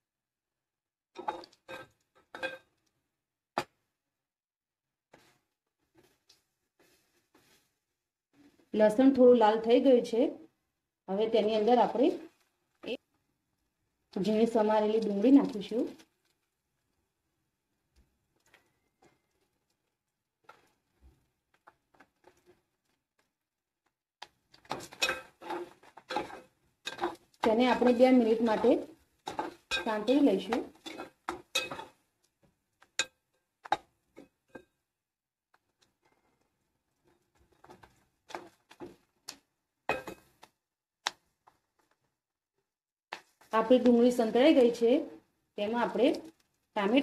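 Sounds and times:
onions sauteing: 14.2s - 16.0s, 24.4s - 32.2s
spoon scraping pot: 24.5s - 32.1s.

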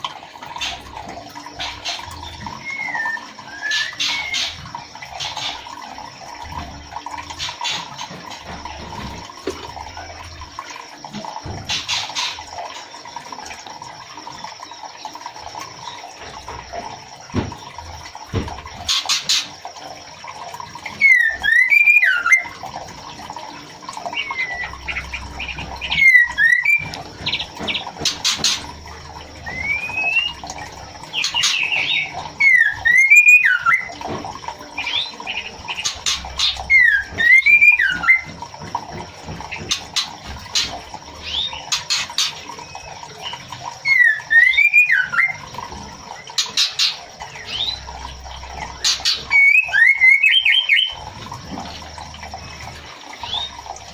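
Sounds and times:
bird whistling call: 2.6s - 4.6s, 21.0s - 22.5s, 25.8s - 26.9s, 29.4s - 30.4s, 31.3s - 33.9s, 36.4s - 38.3s, 43.8s - 45.4s, 49.3s - 51.0s.

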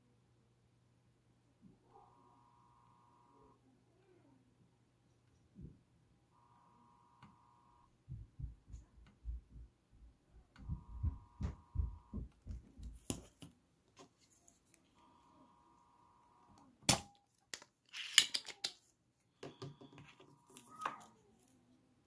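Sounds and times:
faint steady tone: 0.0s - 12.4s, 14.2s - 17.4s
soft low thumps: 8.0s - 13.0s.

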